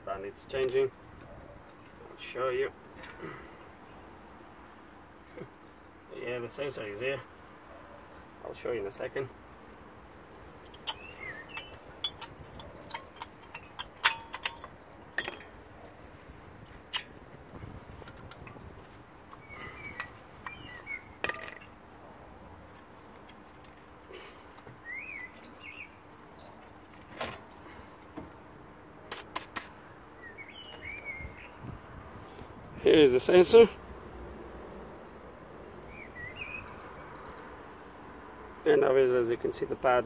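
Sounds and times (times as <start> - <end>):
metallic clicks and clinks: 10.7 - 15.6.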